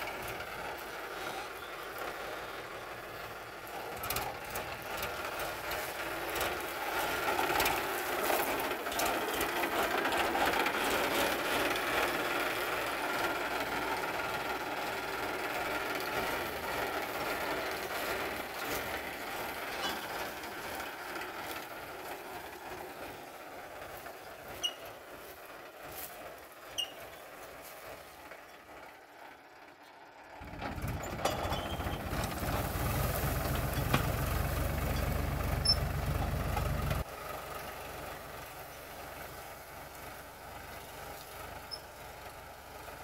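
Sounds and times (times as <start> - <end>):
tractor diesel engine under load: 0.0 - 43.0
mechanical clatter and rattling: 3.8 - 22.7, 30.4 - 37.1.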